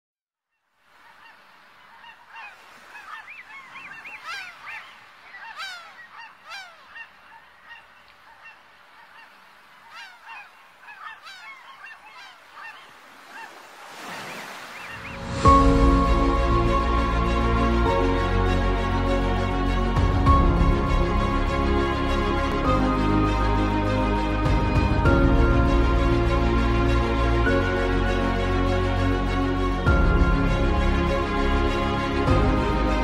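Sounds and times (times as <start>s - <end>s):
faint steady wash: 0.8s - 15.4s
gulls crying: 0.9s - 16.4s.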